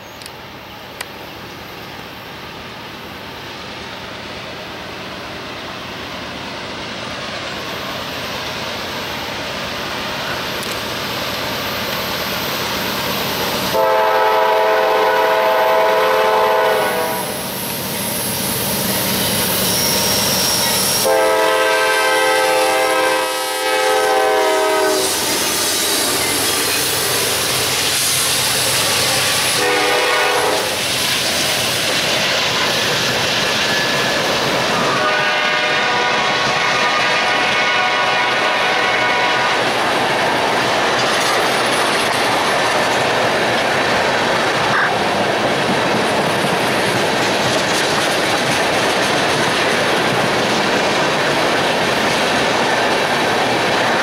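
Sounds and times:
diesel locomotive rumble: 6.6 - 54.0
train air horn blasts: 13.7 - 17.4, 20.8 - 26.0, 29.3 - 30.8, 34.8 - 39.7
train wheels clattering over rails: 24.1 - 35.2, 39.6 - 54.0.

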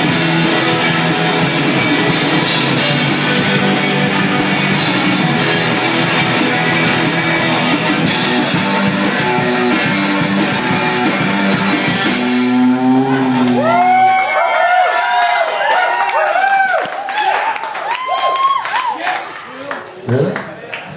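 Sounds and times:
rock band playing live: 0.0 - 14.5.

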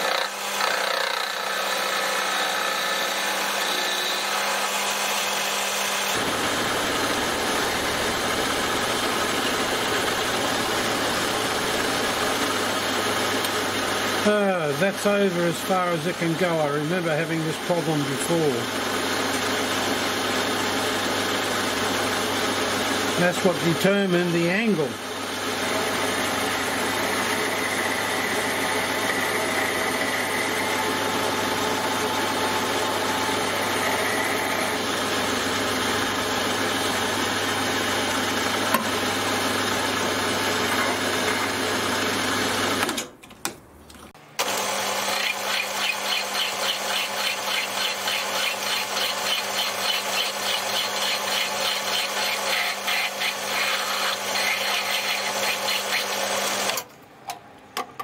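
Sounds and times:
lathe motor humming: 0.0 - 42.9, 44.4 - 56.8
hand file rasping on metal: 45.1 - 56.3.

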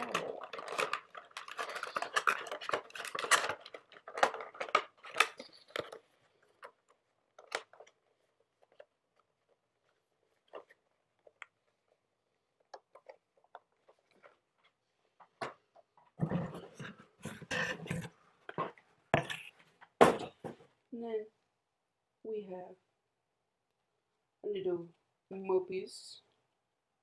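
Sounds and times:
packaging crinkling: 0.0 - 11.4.

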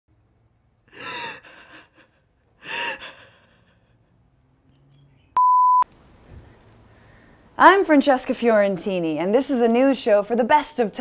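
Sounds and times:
woman sobbing: 0.9 - 4.1.

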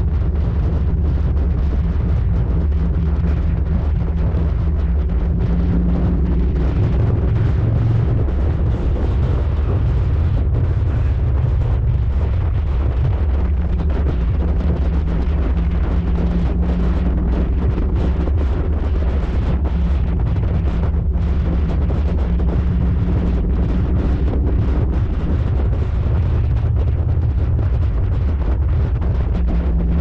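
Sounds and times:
motorcycle engine drone: 0.0 - 30.0
wind buffeting microphone: 0.0 - 30.0.

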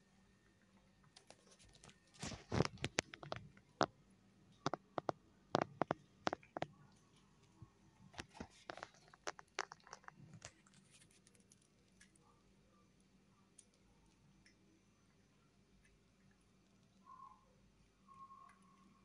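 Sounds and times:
cat crunching dry kibble: 8.2 - 12.2.

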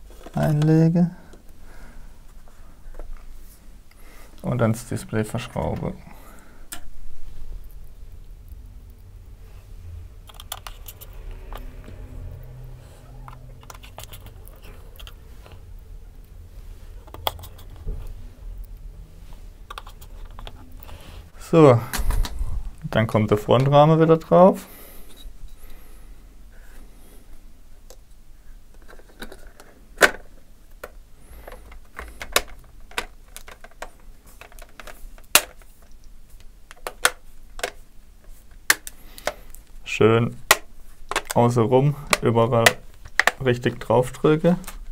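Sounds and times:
steady low hum: 0.0 - 28.8
sharp plastic clicks and knocks: 28.8 - 36.1, 40.4 - 41.4, 42.1 - 43.5.

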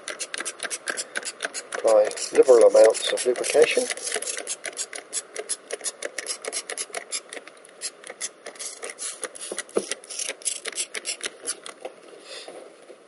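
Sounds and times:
spray bottle hissing sprays: 7.8 - 11.3.

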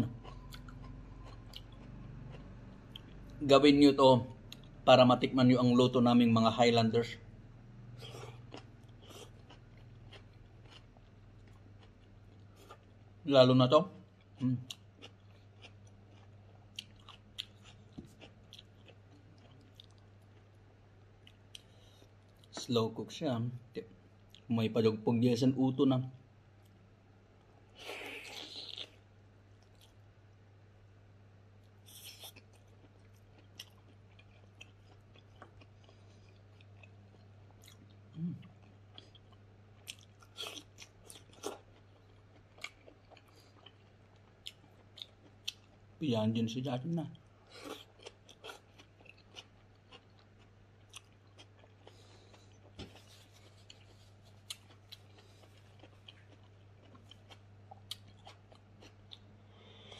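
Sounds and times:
steady low hum: 0.0 - 59.9
close-up chewing: 8.0 - 13.2, 14.2 - 20.6, 31.9 - 45.9, 47.4 - 59.9.

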